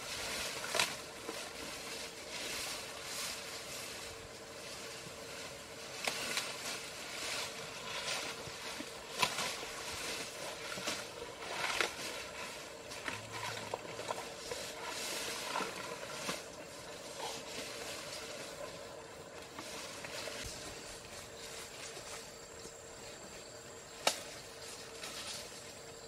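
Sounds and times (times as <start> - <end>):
elephant chewing grass: 0.0 - 26.0.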